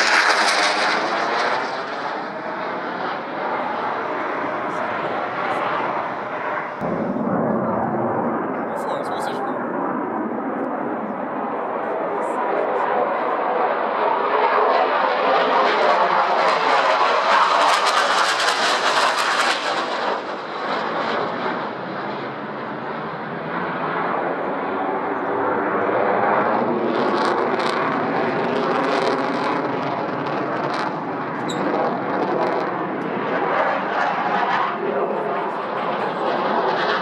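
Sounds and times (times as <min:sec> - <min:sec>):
jet engine crackles: 0:00.0 - 0:10.8, 0:26.2 - 0:37.0
jet engine roar: 0:00.0 - 0:37.0.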